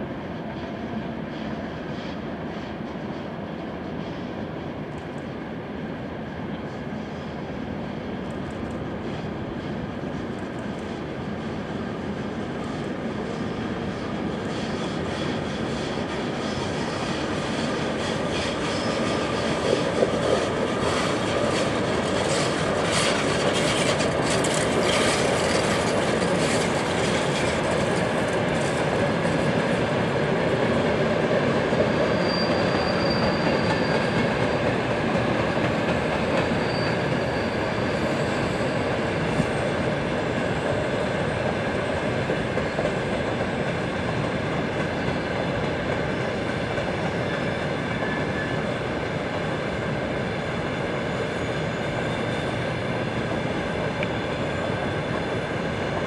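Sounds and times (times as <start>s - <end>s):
freight train rolling past: 0.0s - 56.0s
wheels clicking over rail joints: 19.4s - 29.7s
high-pitched wheel squeals: 31.9s - 34.7s, 36.4s - 39.5s.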